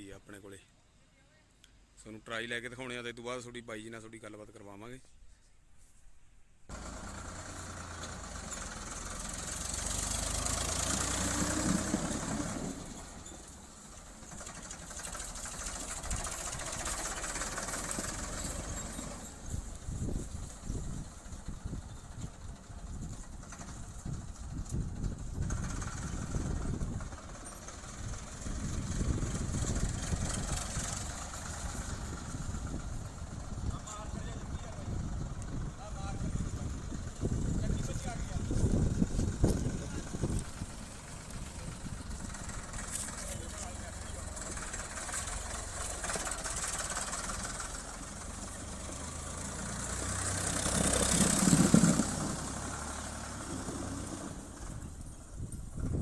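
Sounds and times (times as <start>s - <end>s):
tractor engine running: 6.7s - 56.0s.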